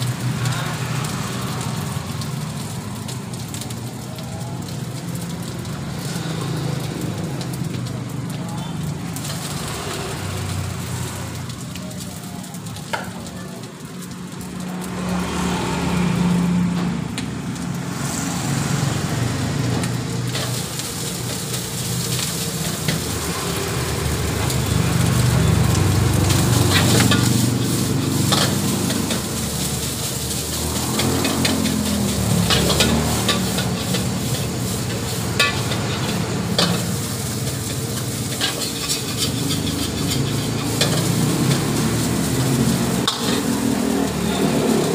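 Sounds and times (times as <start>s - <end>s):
rice sizzling in wok: 0.0s - 44.9s
wok burner rumble: 0.0s - 44.9s
ladle clanking and scraping wok: 9.1s - 11.7s, 18.0s - 44.9s.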